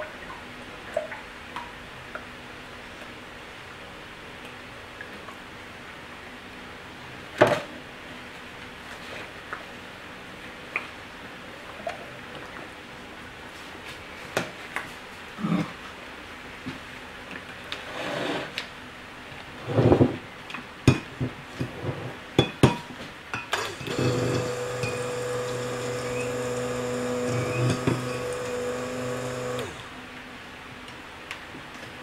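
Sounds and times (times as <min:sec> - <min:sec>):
stick blender running: 0:23.5 - 0:30.0.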